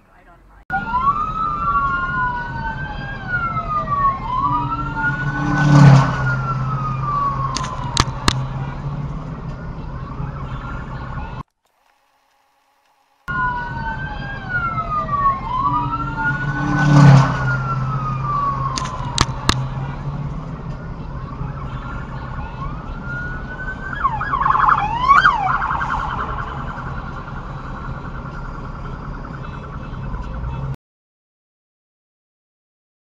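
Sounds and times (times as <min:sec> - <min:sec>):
traffic noise: 0:00.0 - 0:30.8
police siren wailing and yelping: 0:00.7 - 0:08.9, 0:13.3 - 0:20.1, 0:21.0 - 0:30.6
sharp clicks: 0:07.5 - 0:08.4, 0:18.7 - 0:19.6.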